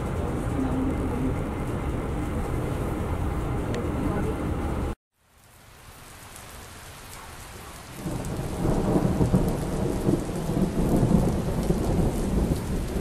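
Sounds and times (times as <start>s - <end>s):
steady rain: 0.0s - 13.0s
low rumble of thunder: 7.7s - 13.0s.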